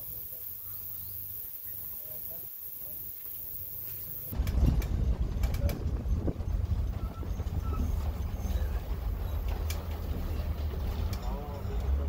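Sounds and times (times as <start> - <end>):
bus engine and road rumble: 3.7 - 12.0
clicks and rattles: 4.3 - 12.0.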